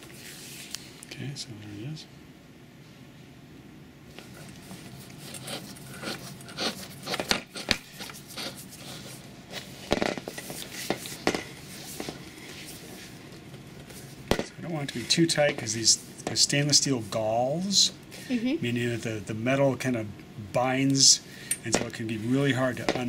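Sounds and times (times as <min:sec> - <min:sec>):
threads rubbing and scraping: 0:04.1 - 0:16.3.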